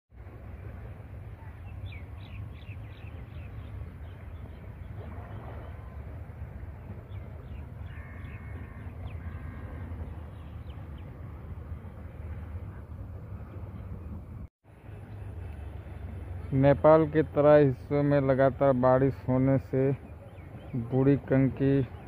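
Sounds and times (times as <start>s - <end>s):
low outdoor rumble: 0.2s - 22.0s
crows cawing: 7.8s - 9.9s.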